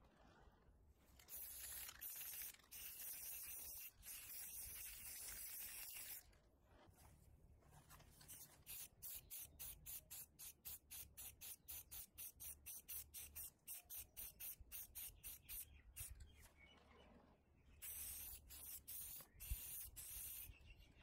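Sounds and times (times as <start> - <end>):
spray paint can hissing: 1.2 - 6.2, 8.3 - 16.2, 17.8 - 20.6.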